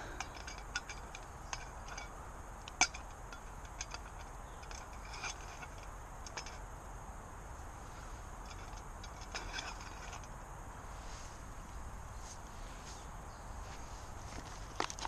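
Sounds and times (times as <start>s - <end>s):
distant motorway traffic: 0.0s - 15.0s.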